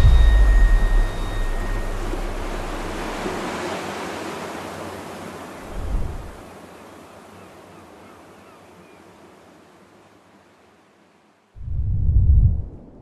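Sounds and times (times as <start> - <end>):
low thump: 0.0 - 3.4
sea surf on rocky shore: 0.0 - 11.4.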